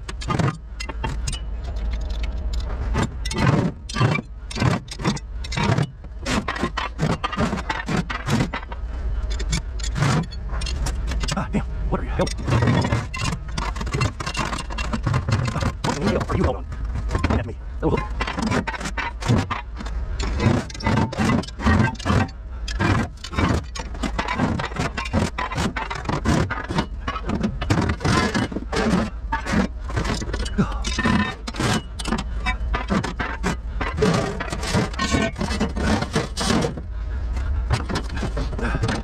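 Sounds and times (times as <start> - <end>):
scrap metal clanking and scraping: 0.0 - 39.0
steady low rumble: 8.4 - 18.3, 19.2 - 26.0, 26.8 - 39.0.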